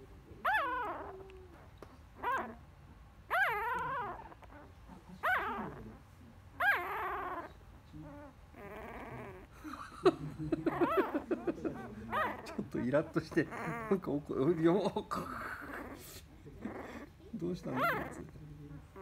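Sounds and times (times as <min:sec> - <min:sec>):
puppy grumbling growl: 0:00.4 - 0:02.6, 0:03.3 - 0:06.0, 0:06.6 - 0:09.7, 0:10.5 - 0:19.0
puppy squealing: 0:00.4 - 0:02.6, 0:03.3 - 0:05.9, 0:06.6 - 0:09.5, 0:10.6 - 0:19.0.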